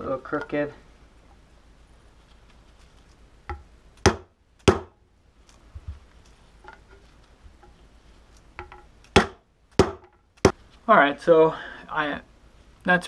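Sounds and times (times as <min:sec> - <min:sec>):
mallet knocking on fork seal: 0:08.6 - 0:10.2.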